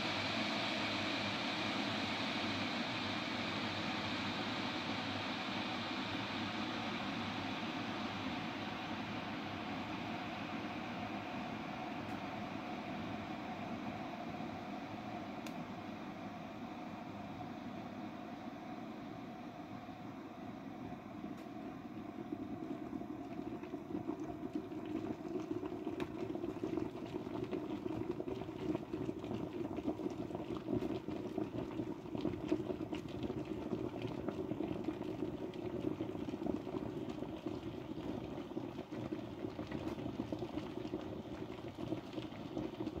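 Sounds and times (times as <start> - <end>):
kettle water bubbling: 0.0 - 43.0
bubbles popping: 22.4 - 43.0.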